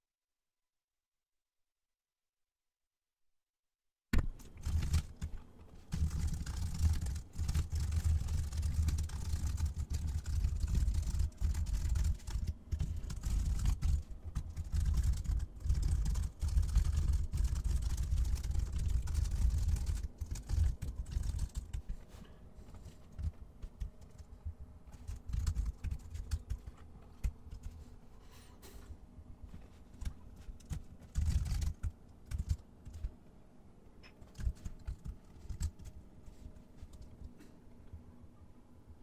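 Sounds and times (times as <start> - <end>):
fast typing on a computer keyboard: 4.2 - 22.0, 22.7 - 27.9, 29.9 - 33.2, 34.0 - 36.0.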